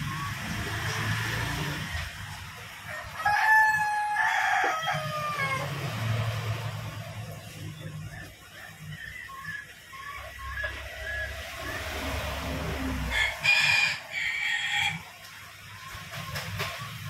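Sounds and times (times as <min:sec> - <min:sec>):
rooster crowing: 0:02.8 - 0:06.0, 0:12.8 - 0:15.1.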